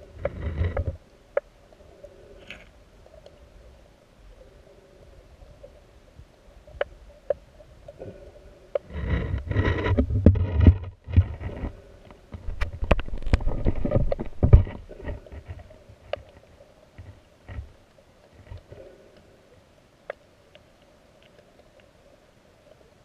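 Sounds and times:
faint underwater hum: 0.0s - 23.0s
rumbling water turbulence: 7.7s - 16.2s.

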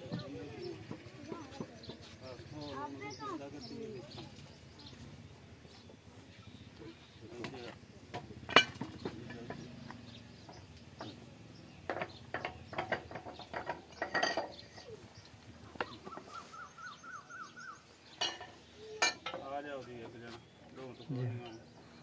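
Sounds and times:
bird chirping: 0.0s - 22.0s
hand tools clinking on metal: 7.6s - 11.2s, 11.9s - 15.3s, 18.1s - 19.6s.

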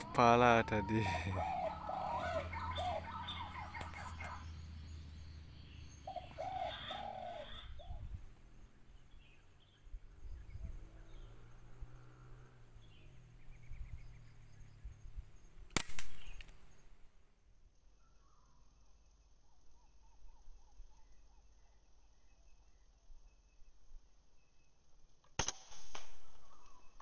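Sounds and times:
bird calls: 0.0s - 17.1s
air rifle shot: 15.7s - 16.5s, 25.4s - 26.5s.

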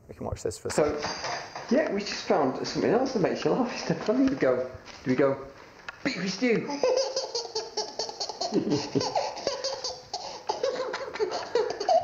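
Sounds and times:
baby laughing hard: 6.7s - 12.0s.

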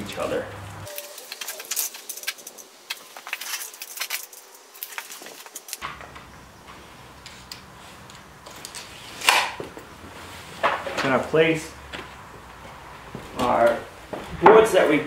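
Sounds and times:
tape measure clicking and rattling: 0.9s - 5.8s.

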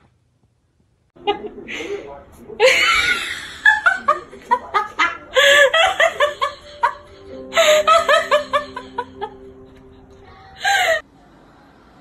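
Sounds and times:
person laughing hard: 2.6s - 10.0s.

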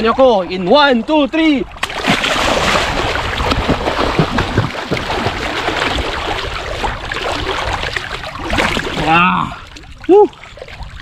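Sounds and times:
water splashing from swimmer: 1.8s - 11.0s.

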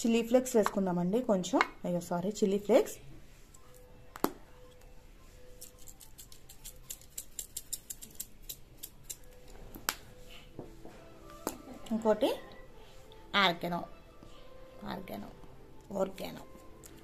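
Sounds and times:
flakes rattling in shaker jar: 5.6s - 9.2s.

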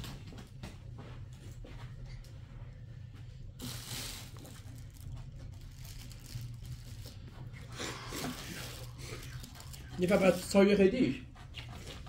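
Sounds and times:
steady low hum: 0.0s - 12.0s
hands rustling in plastic tub: 3.6s - 11.2s.

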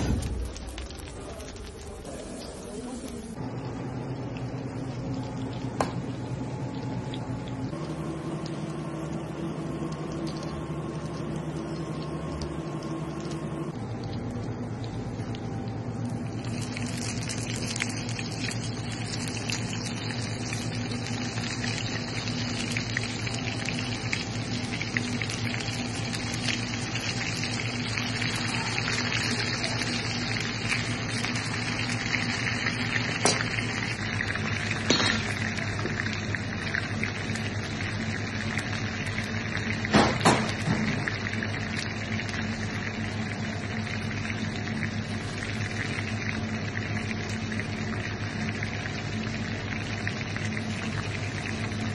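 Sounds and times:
low hum: 0.0s - 39.8s
butter sizzling and bubbling: 0.0s - 51.9s.

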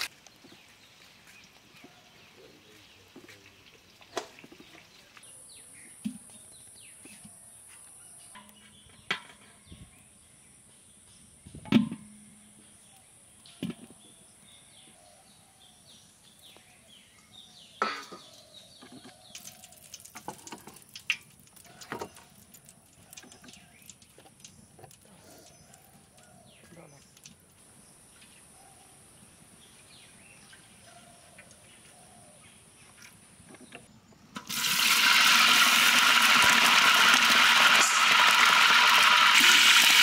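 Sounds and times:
ghee sizzling in a pot: 17.7s - 28.0s, 34.3s - 40.0s
cookware knocking and clanking: 17.8s - 18.3s.

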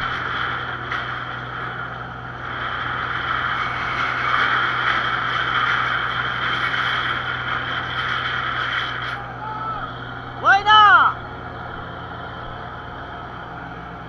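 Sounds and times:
hiss of wind and water: 0.0s - 9.1s
boat engine humming: 0.0s - 14.0s.

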